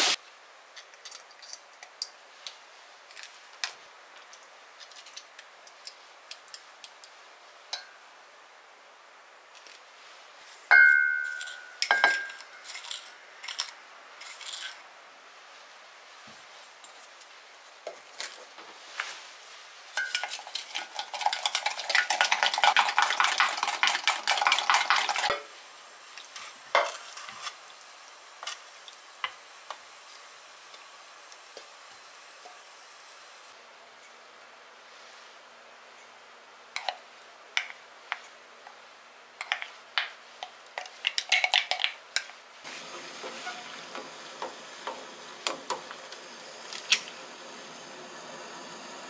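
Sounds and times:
spoon clinking against glass jug: 10.7 - 13.1
spoon stirring thick sauce: 20.0 - 25.3.

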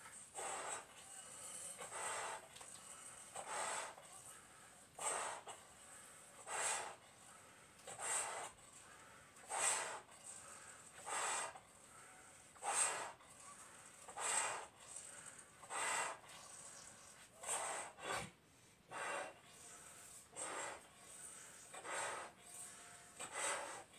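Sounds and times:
breaths blown into balloons: 6.4 - 7.1, 7.9 - 8.6, 9.4 - 11.6, 12.6 - 13.2, 14.1 - 23.9.

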